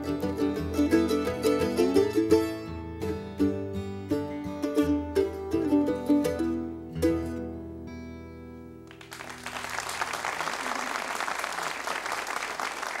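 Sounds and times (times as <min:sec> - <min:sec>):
mandolin: 0:00.0 - 0:08.8
acoustic guitar: 0:00.0 - 0:09.6
audience applauding: 0:08.9 - 0:13.0.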